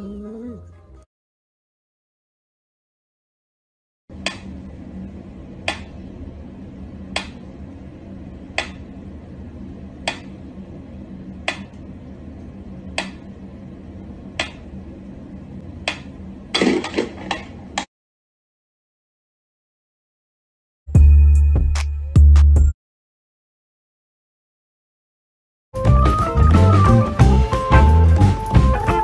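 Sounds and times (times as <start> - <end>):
low hum: 4.1 - 16.6.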